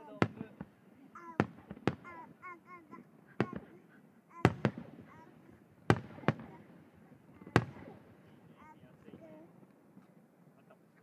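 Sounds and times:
firework shells booming: 0:00.0 - 0:03.8, 0:04.4 - 0:08.3.

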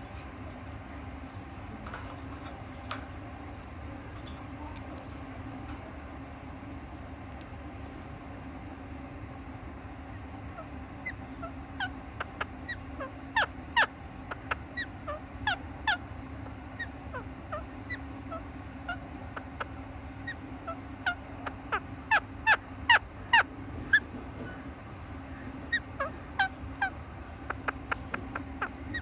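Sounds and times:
steady low hum: 0:00.0 - 0:29.0
parakeet chirping: 0:10.5 - 0:24.0, 0:25.6 - 0:29.0
parakeet squawks: 0:10.5 - 0:24.1, 0:25.6 - 0:29.0.

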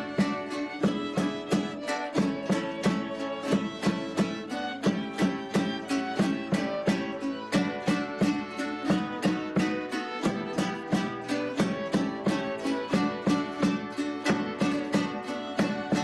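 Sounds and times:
folk string-band music: 0:00.0 - 0:16.0
plucked strings strumming: 0:00.0 - 0:16.0.

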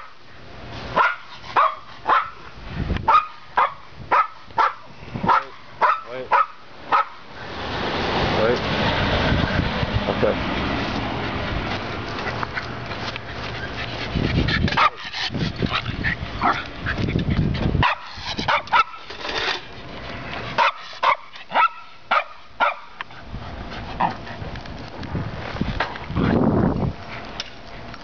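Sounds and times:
dog barking: 0:01.0 - 0:02.4, 0:03.1 - 0:07.2, 0:14.8 - 0:15.0, 0:17.8 - 0:19.0, 0:20.6 - 0:22.9
bicycle ride rushing noise: 0:06.9 - 0:21.7.

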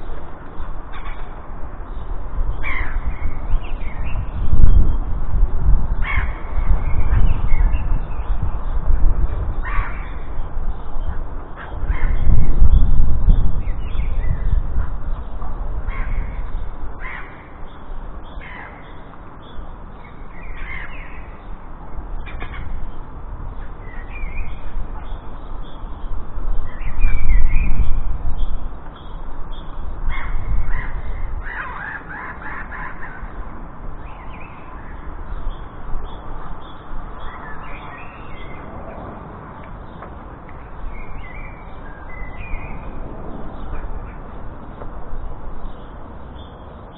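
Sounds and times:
jackdaws calling: 0:00.0 - 0:02.0, 0:02.6 - 0:04.2, 0:06.0 - 0:07.8, 0:09.6 - 0:12.4, 0:14.0 - 0:27.8, 0:28.8 - 0:38.7.

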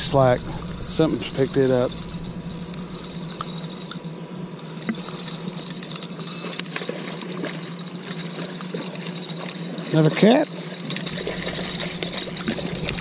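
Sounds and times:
high-pitched drone: 0:00.0 - 0:06.4, 0:10.9 - 0:13.0
steady low hum: 0:00.0 - 0:06.5, 0:10.8 - 0:13.0
fishing reel clicks and rattles: 0:00.0 - 0:13.0.

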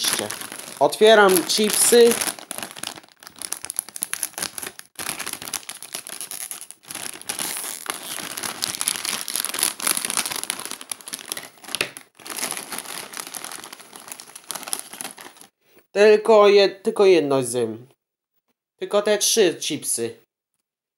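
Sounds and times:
plastic bag crinkling: 0:00.0 - 0:15.5.

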